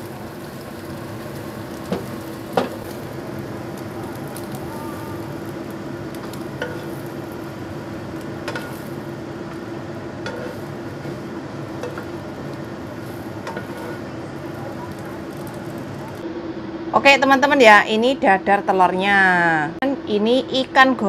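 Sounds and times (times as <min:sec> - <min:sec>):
omelette sizzling in oil: 0:00.0 - 0:16.2
spatula scraping and knocking pan: 0:06.1 - 0:07.2, 0:08.2 - 0:14.1.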